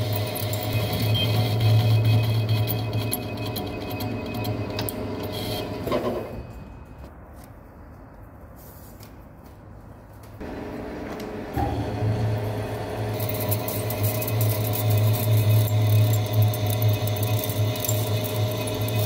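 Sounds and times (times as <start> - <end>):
lathe humming: 0.0 - 6.3, 10.4 - 19.0.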